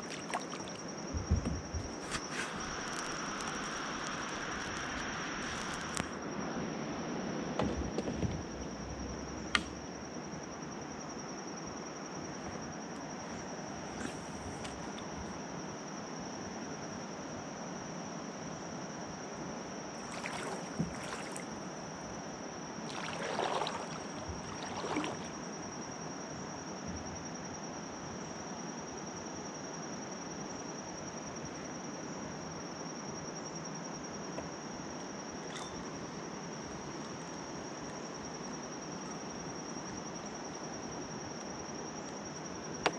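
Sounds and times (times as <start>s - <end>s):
water swishes from kayak: 0.0s - 6.2s, 19.9s - 26.0s
insects droning: 0.0s - 42.9s.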